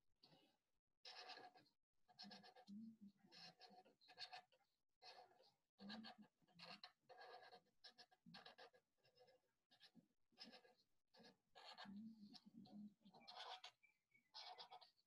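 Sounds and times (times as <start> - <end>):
felt-tip pen drawing on paper: 1.0 - 15.0.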